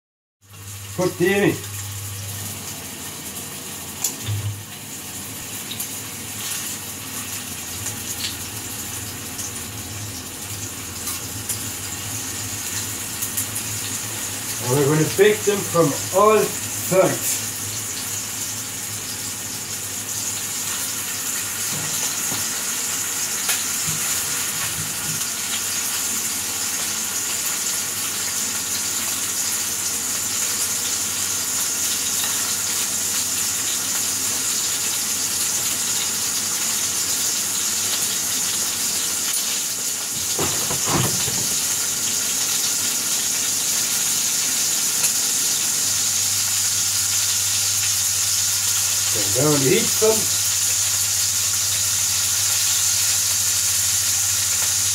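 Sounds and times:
patties sizzling in a frying pan: 0:00.4 - 0:54.9.

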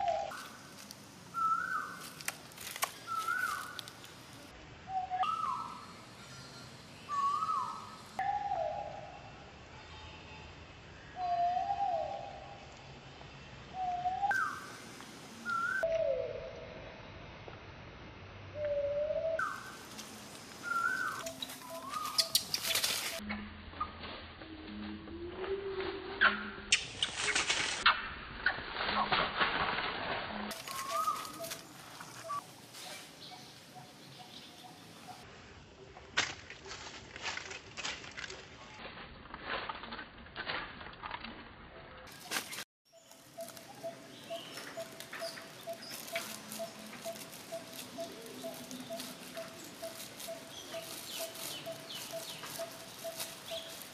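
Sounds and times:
baby macaque coo calls: 0:20.6 - 0:23.2, 0:30.6 - 0:31.6, 0:43.4 - 0:53.9
sharp clicks and rustles: 0:21.2 - 0:23.2.

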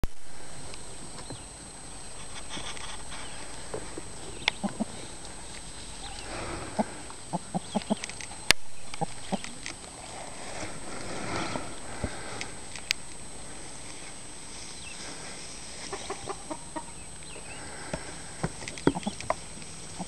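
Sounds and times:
rustling in grass: 0:00.2 - 0:20.0
rooster clucking: 0:02.2 - 0:05.3, 0:05.9 - 0:08.1, 0:15.8 - 0:17.0, 0:18.8 - 0:19.4.

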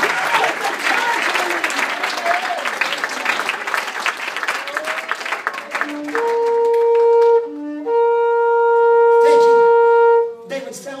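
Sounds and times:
shofar blasts: 0:05.7 - 0:10.5.

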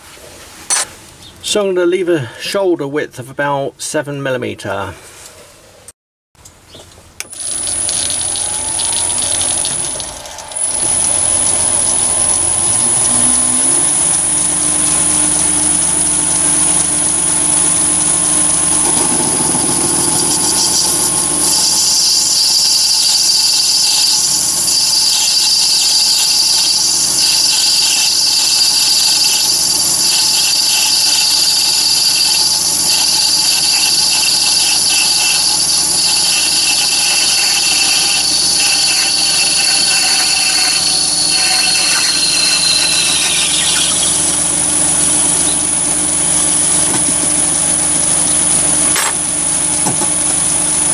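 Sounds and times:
lathe motor whining: 0:07.2 - 0:49.4
tool cutting metal bar: 0:18.9 - 0:44.2, 0:48.8 - 0:49.2.

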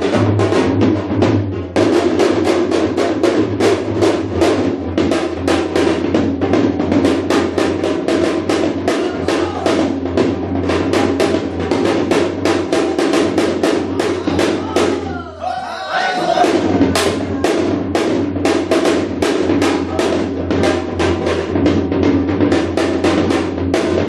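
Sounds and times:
hourglass drum fast rhythm: 0:00.0 - 0:15.3, 0:16.0 - 0:24.0.

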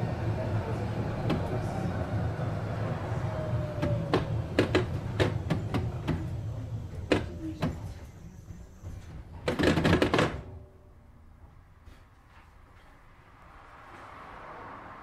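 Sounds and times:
tram doors hiss and clatter: 0:00.0 - 0:10.7
tram running rumble: 0:00.0 - 0:11.8.

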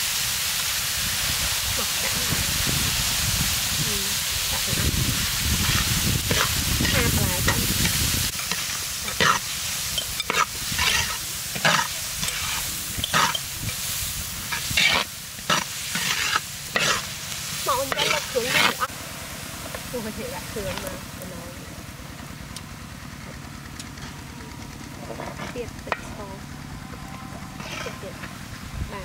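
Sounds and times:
vegetables sizzling in a wok: 0:00.0 - 0:22.5, 0:27.6 - 0:29.0
metal ladle scraping a pan: 0:05.6 - 0:18.9, 0:27.5 - 0:28.3.

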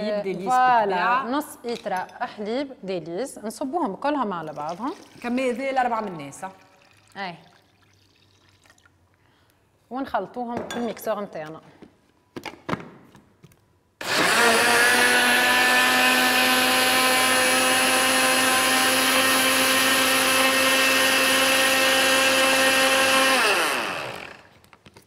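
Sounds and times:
blender motor running: 0:14.0 - 0:24.6.

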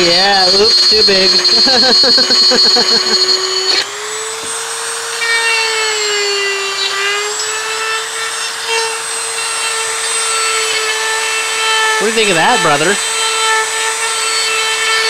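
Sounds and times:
rotary tool cutting plastic: 0:00.0 - 0:15.0.

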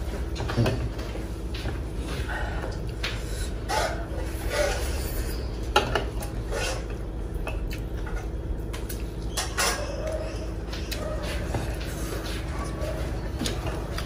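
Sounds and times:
chewing: 0:06.2 - 0:14.0.

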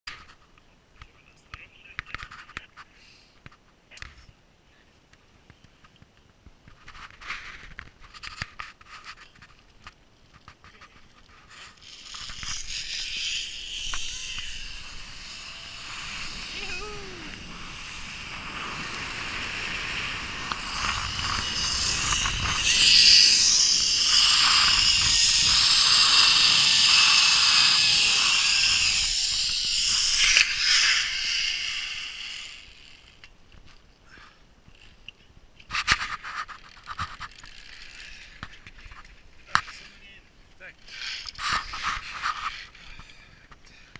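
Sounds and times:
zipline trolley whirring on cable: 0:11.3 - 0:33.4, 0:35.8 - 0:40.0, 0:40.8 - 0:43.3.

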